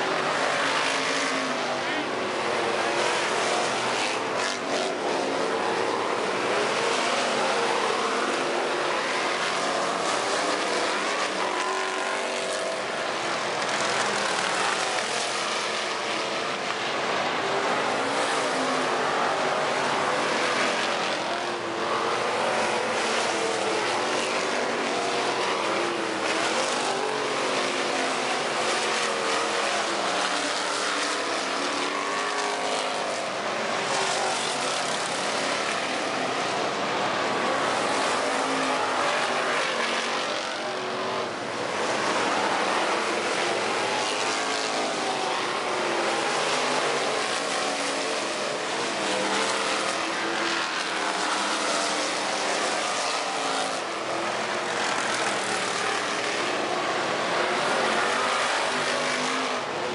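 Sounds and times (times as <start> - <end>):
race car engines passing: 0.0 - 59.9.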